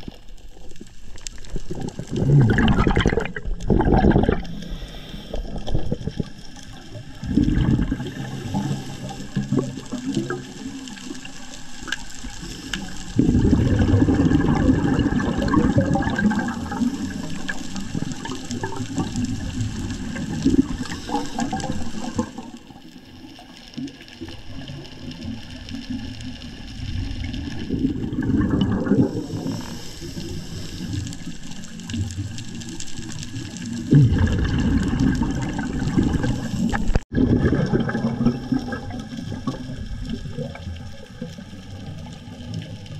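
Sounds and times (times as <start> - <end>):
diver exhaling air bubbles underwater: 1.4 - 11.0, 12.4 - 22.6, 26.6 - 42.5.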